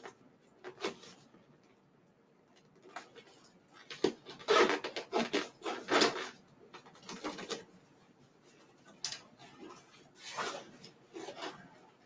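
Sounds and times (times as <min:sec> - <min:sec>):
vinyl cover rubbing and scraping: 0:09.4 - 0:12.0.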